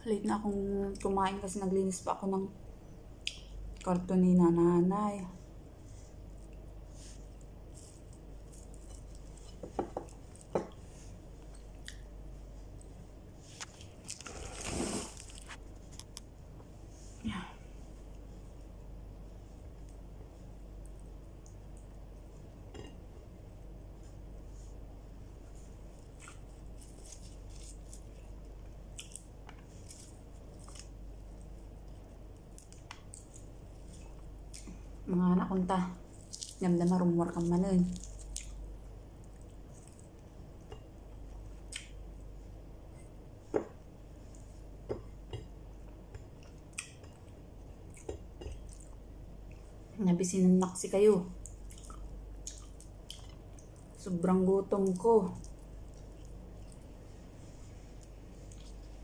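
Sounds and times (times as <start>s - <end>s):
low steady hum: 0.0s - 59.0s
faint chewing: 6.2s - 16.3s, 25.6s - 34.9s, 36.1s - 42.3s, 45.3s - 49.7s, 51.4s - 54.0s, 54.7s - 59.0s
clicks and rustles of eating: 7.3s - 16.4s, 25.6s - 34.8s, 36.1s - 42.2s, 51.4s - 54.0s, 54.7s - 57.1s, 57.8s - 59.0s.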